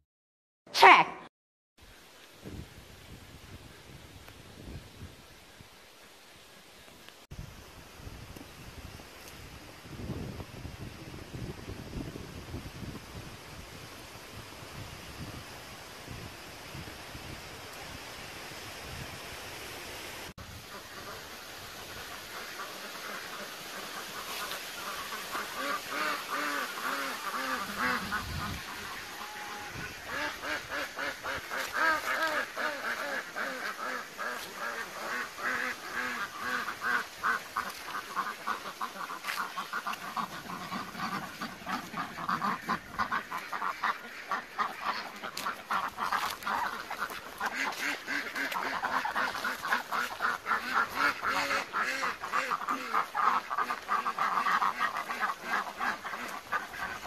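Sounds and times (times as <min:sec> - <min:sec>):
ducks quacking: 0:20.6 - 0:57.0.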